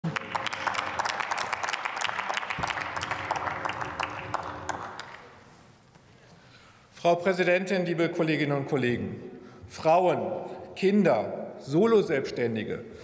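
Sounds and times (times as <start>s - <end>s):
scattered applause: 0.0s - 5.3s.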